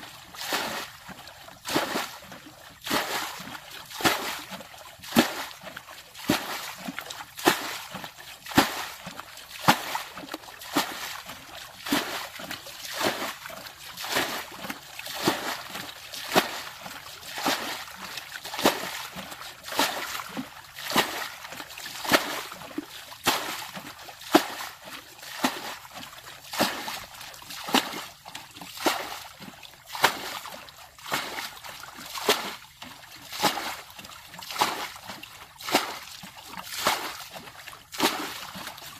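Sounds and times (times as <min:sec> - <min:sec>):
rhythmic water splashing: 0:00.0 - 0:38.9.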